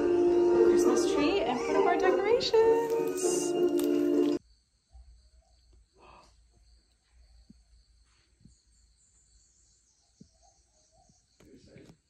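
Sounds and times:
faint insect chorus: 4.3 - 12.0.

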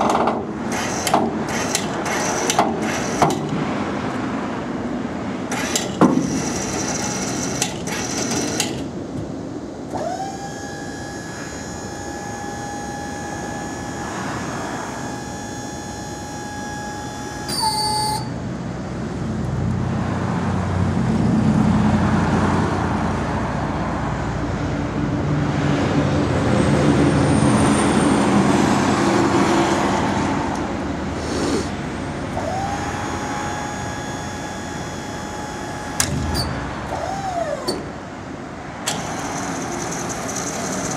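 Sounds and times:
electric motor whining: 10.0 - 17.5, 32.3 - 37.9.

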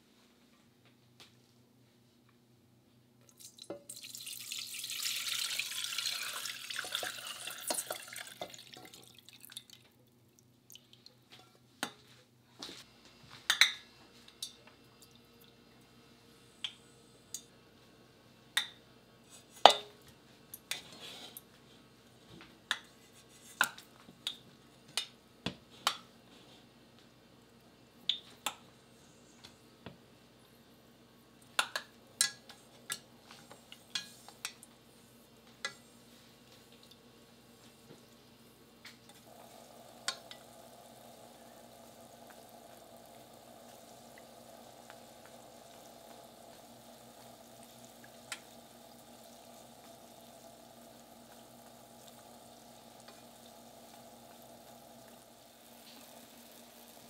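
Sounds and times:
oil pouring into a saucepan: 3.3 - 9.9, 39.2 - 57.0.

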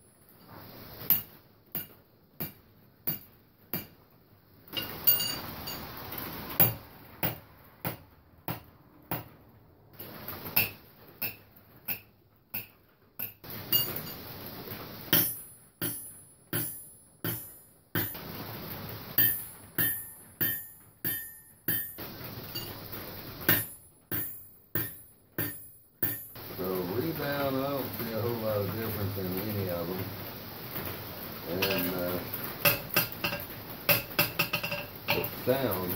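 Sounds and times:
hammer striking anvil: 1.1 - 3.9, 10.0 - 14.2, 15.1 - 18.2, 19.2 - 22.8, 23.4 - 26.4, 31.6 - 32.0, 32.6 - 35.4.

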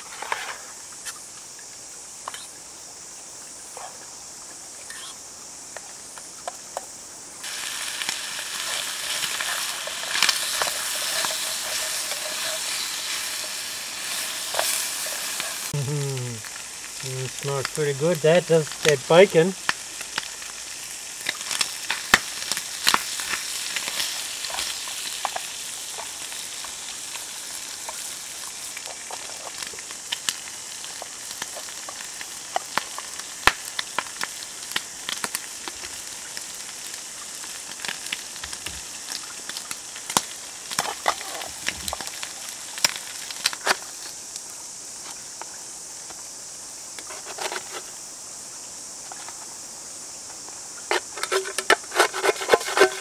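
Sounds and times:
bacon sizzling in a pan: 7.4 - 45.6.

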